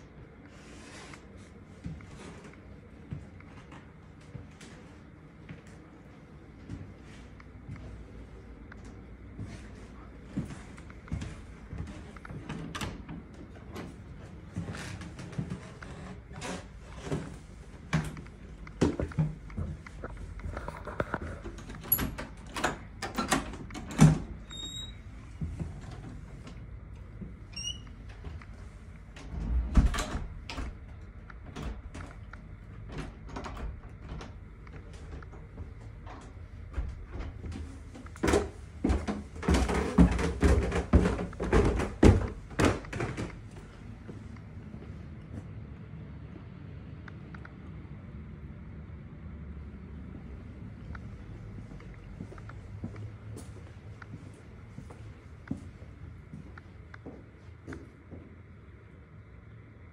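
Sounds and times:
footsteps going down stairs: 17.0 - 20.6, 33.9 - 45.4, 51.6 - 58.4
footsteps on wooden stairs: 36.6 - 43.7.

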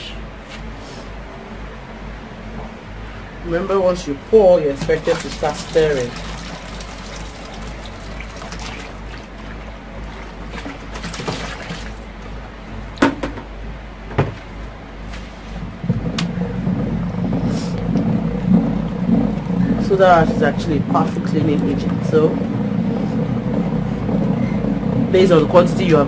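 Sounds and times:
liquid pouring and splashing: 4.5 - 12.2
liquid sloshing when stirred: 4.6 - 12.2
sharp knocks: 13.0 - 13.5, 14.1 - 14.4.

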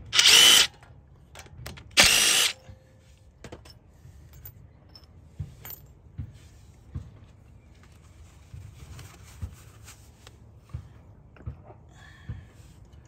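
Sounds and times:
cordless power driver spinning: 0.1 - 0.7, 2.0 - 2.6.

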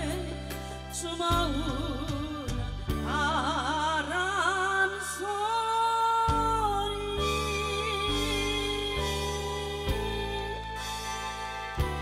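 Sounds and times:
woman singing into microphone: 0.0 - 12.0
musical accompaniment: 6.3 - 12.0.

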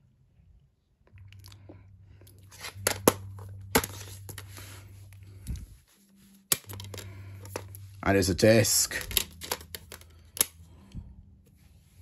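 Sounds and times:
plastic case rustling: 6.6 - 7.8, 8.8 - 10.1
plastic case clasp clicking: 9.1 - 10.6.

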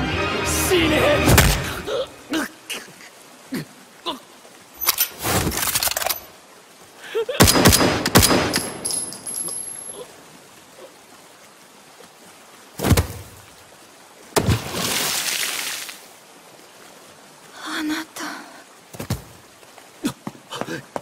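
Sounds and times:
gunshots: 7.4 - 8.8.

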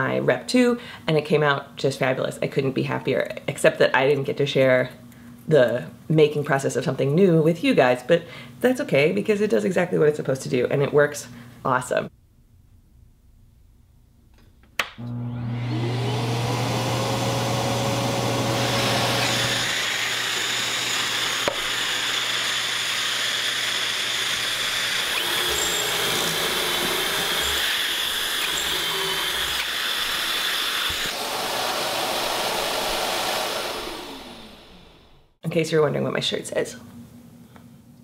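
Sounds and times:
dust extractor whine: 14.9 - 35.4
drill boring: 15.5 - 35.3.

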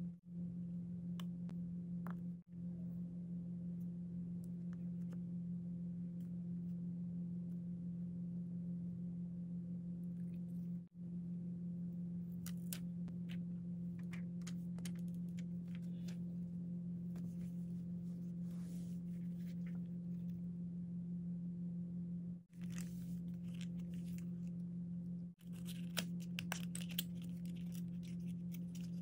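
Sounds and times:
steady low hum: 0.0 - 29.0
paper crinkling: 22.5 - 24.5, 25.4 - 29.0.

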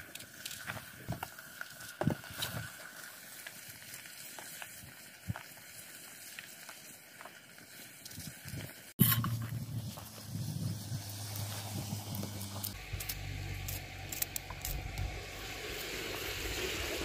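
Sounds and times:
wood fire crackling: 0.0 - 17.0.

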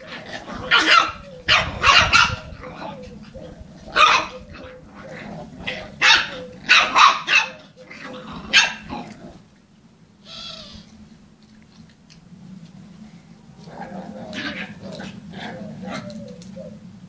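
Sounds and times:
dog barking: 0.6 - 3.0, 3.9 - 4.8, 5.9 - 7.6, 8.5 - 8.9.

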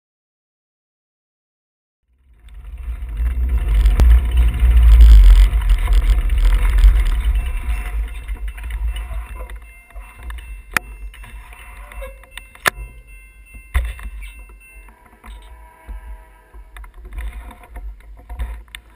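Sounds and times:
wind and road rumble: 2.1 - 14.8.

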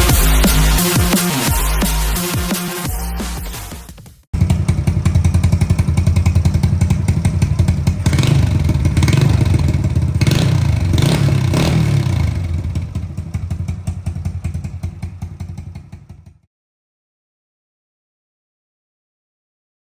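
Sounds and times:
motorcycle engine puttering: 4.4 - 16.5.

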